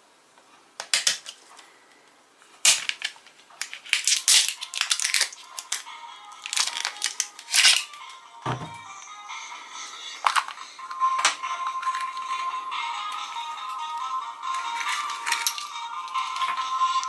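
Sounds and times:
plastic wrap tearing and crinkling: 2.6s - 8.0s, 14.7s - 15.7s.

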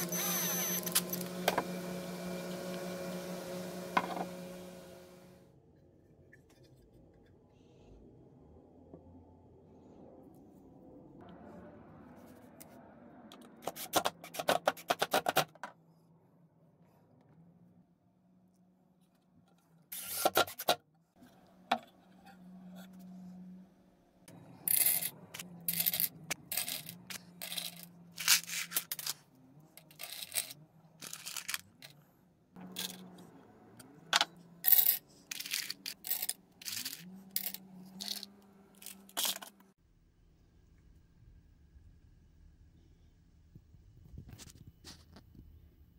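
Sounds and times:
screws clattering into metal bin: 34.7s - 39.5s.

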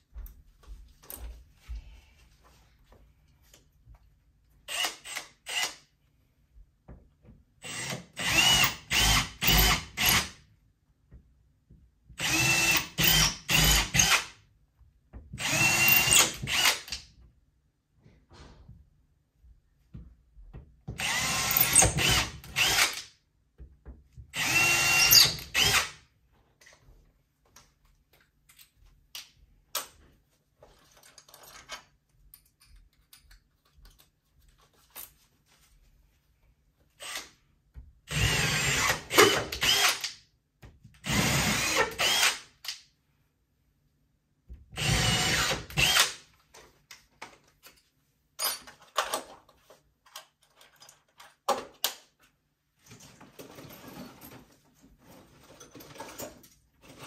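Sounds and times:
power drill whining in bursts: 24.4s - 25.9s.

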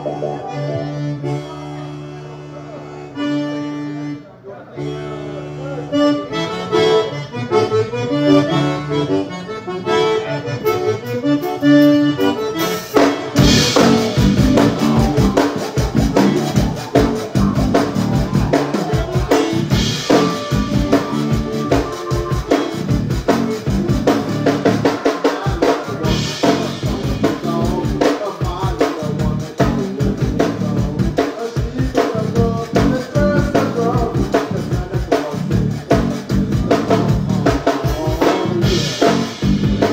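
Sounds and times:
accordion playing chords: 0.0s - 39.9s
live band playing: 0.0s - 39.9s
drum kit beat: 10.6s - 39.9s.

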